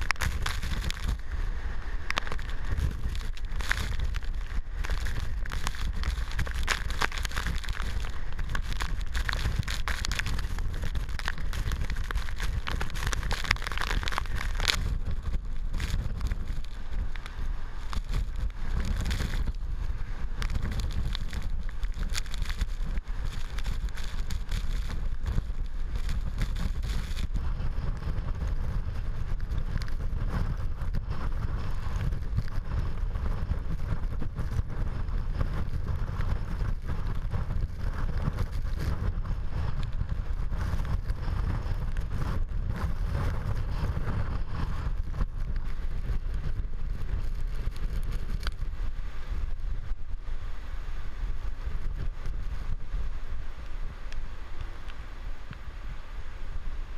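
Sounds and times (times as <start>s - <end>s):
heavy driving rain: 0.0s - 27.2s
wind gusts buffeting microphone: 0.0s - 56.9s.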